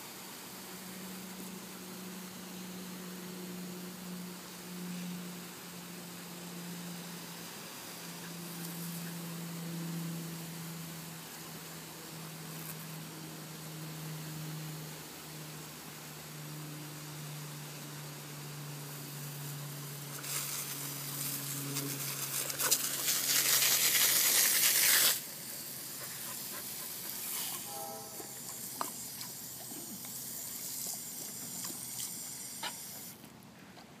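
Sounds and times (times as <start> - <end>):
hose spray nozzle hissing: 20.1 - 33.2.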